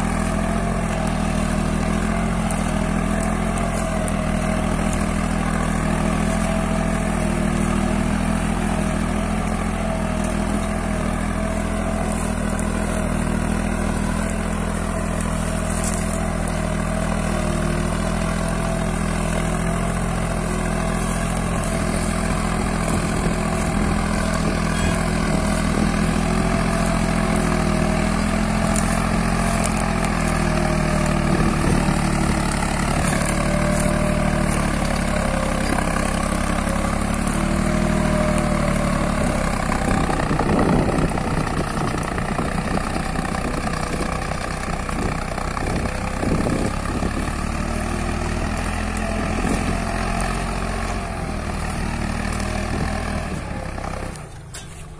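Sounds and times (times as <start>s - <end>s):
tractor diesel engine under load: 0.0s - 54.9s.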